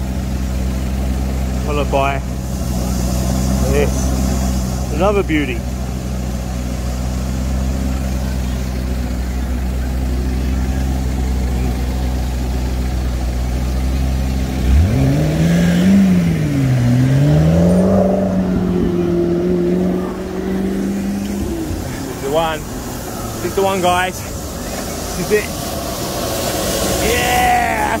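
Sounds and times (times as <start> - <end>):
car engine idling and revving: 0.0 - 28.0.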